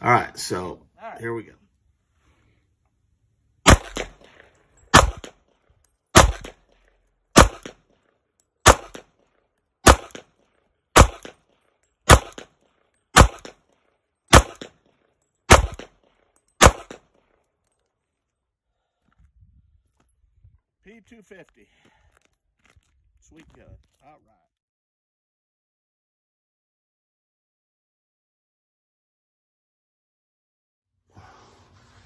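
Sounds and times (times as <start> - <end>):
pistol shots with echo: 3.6 - 4.3, 4.9 - 5.4, 6.1 - 6.7, 7.3 - 7.9, 8.6 - 9.2, 9.8 - 10.4, 11.0 - 11.4, 12.1 - 12.6, 13.2 - 13.6, 14.3 - 14.8, 15.5 - 16.0, 16.6 - 17.1.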